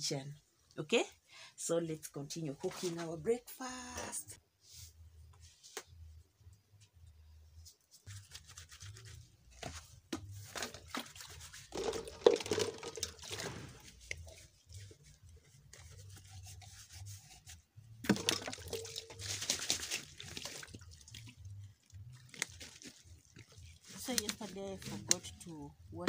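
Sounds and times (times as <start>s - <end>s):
water pouring and splashing: 10.5s - 15.1s, 18.0s - 25.1s
plastic cups rubbing: 10.5s - 20.3s.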